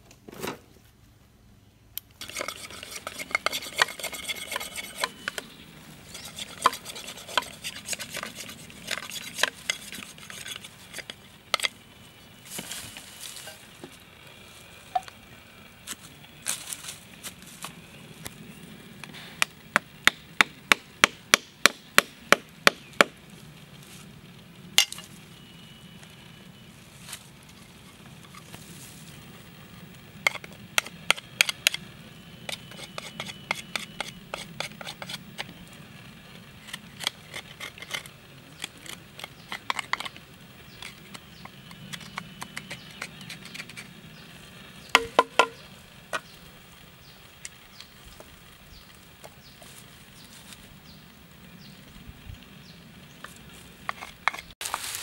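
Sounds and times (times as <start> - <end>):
knife cutting bamboo: 2.2 - 5.5, 6.1 - 11.7, 32.5 - 35.5.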